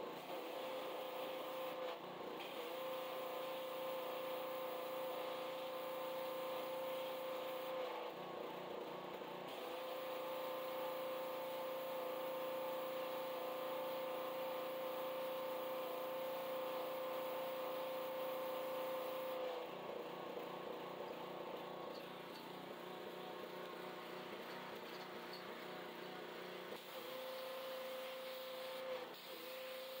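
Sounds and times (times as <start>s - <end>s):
pressure washer pump whine: 26.8s - 30.0s.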